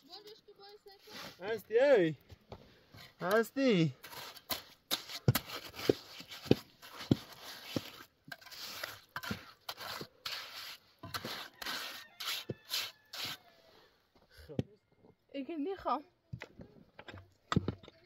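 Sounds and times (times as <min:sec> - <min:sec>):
trowel scraping mortar: 0:02.9 - 0:13.5.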